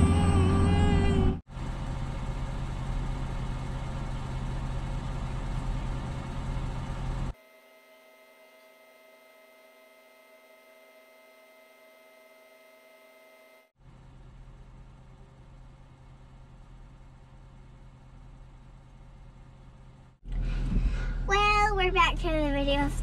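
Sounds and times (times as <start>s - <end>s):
truck engine idling: 0.0s - 7.3s.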